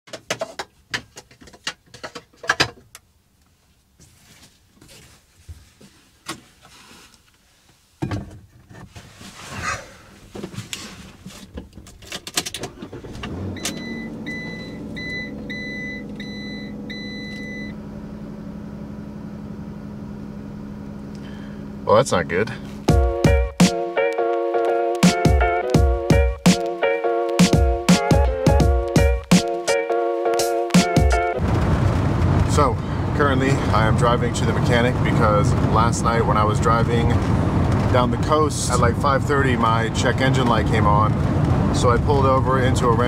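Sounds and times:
seat rustling and clicks: 0:04.0 - 0:13.9
van engine starting and idling: 0:12.0 - 0:24.1, 0:30.9 - 0:43.0
dashboard warning chime beeping: 0:13.5 - 0:17.8.

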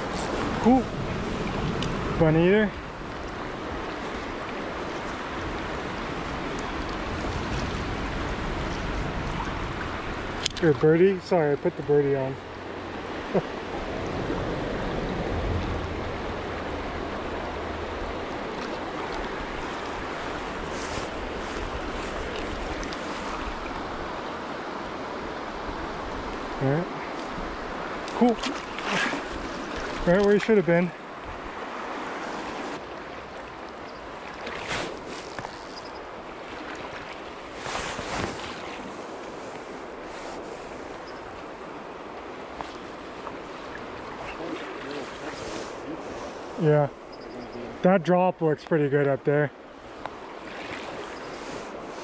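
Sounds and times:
wind rumble on microphone: 0:00.0 - 0:10.9, 0:12.5 - 0:26.6
creek flowing over rocks: 0:00.0 - 0:35.4
stream water rushing: 0:00.0 - 0:52.0
water swooshes: 0:26.0 - 0:30.2, 0:41.8 - 0:47.2, 0:49.7 - 0:52.0.

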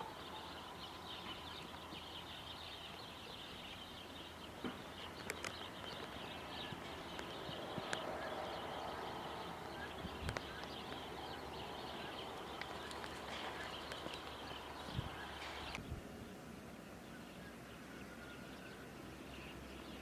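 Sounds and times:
distant birds chirping: 0:00.0 - 0:20.0
rabbits gnawing wood: 0:04.6 - 0:15.8
rustling in straw: 0:12.0 - 0:15.8.

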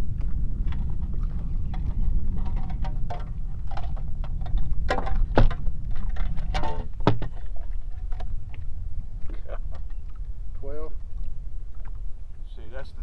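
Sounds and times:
steady low rumble: 0:00.0 - 0:13.0
gear clattering and knocking: 0:00.2 - 0:08.4.

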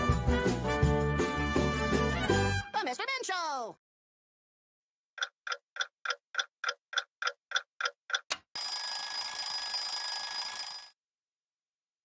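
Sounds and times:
clock ticking: 0:05.2 - 0:08.5
alarm clock ringing: 0:08.5 - 0:11.0.

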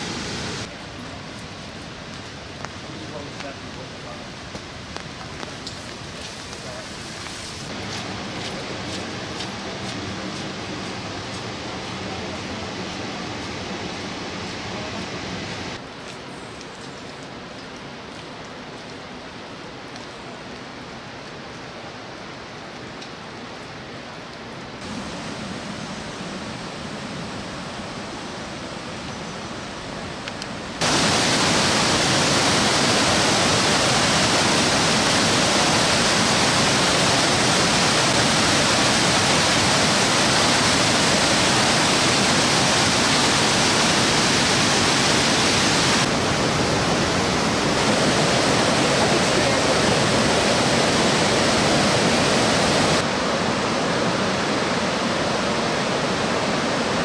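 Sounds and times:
waterfall rushing: 0:00.0 - 0:00.7, 0:24.8 - 0:29.9, 0:30.7 - 0:57.0.

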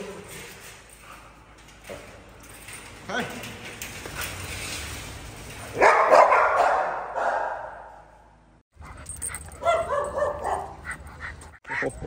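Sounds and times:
dog barking loudly: 0:05.8 - 0:08.0, 0:09.6 - 0:10.9.

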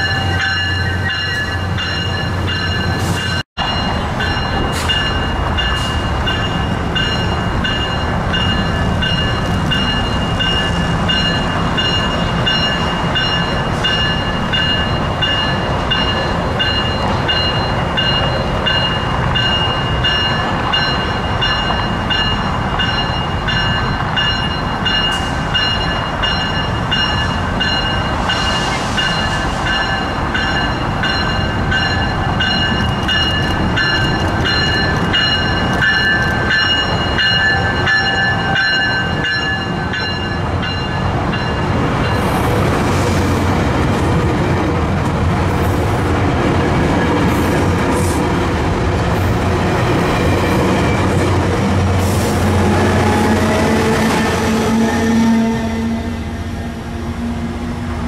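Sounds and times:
crossing warning bell ringing: 0:00.0 - 0:42.4
train rumbling past: 0:00.0 - 0:58.0.

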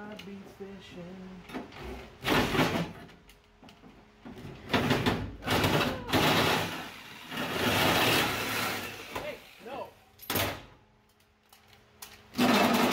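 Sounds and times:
power metal shear cutting sheet metal: 0:05.6 - 0:09.7.

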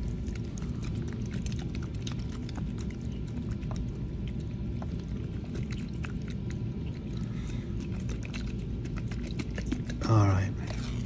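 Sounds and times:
steady low hum: 0:00.0 - 0:11.0
wet squelches and clicks: 0:00.0 - 0:11.0.

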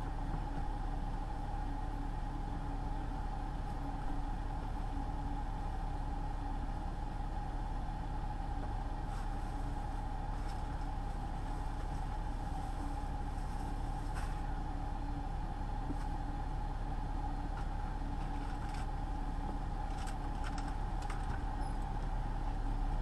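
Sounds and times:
truck engine and road noise: 0:00.0 - 0:23.0.

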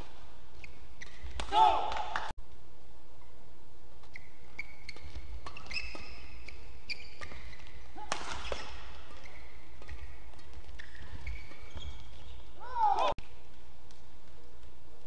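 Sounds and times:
shoes squeaking on court: 0:00.0 - 0:01.5, 0:04.0 - 0:13.1
racket hitting shuttlecock: 0:00.6 - 0:02.3, 0:04.0 - 0:13.2.

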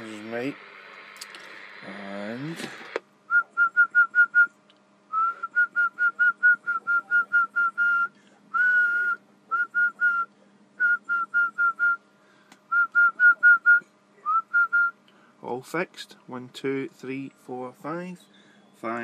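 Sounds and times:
person whistling into microphone: 0:05.2 - 0:12.0, 0:12.7 - 0:15.0.

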